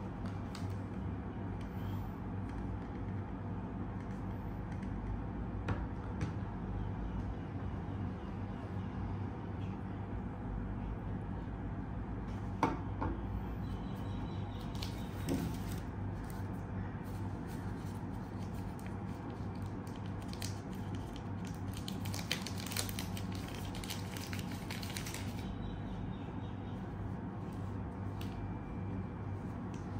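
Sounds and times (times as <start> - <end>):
steady low hum: 0.0 - 29.9
plastic film crinkling: 14.6 - 16.5, 17.1 - 25.5.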